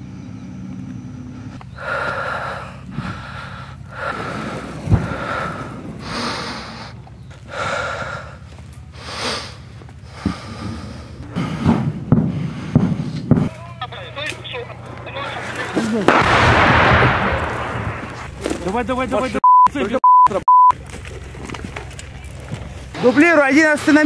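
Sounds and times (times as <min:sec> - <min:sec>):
person breathing heavily: 0:01.7 - 0:13.5
sharp cracks: 0:11.6 - 0:18.8.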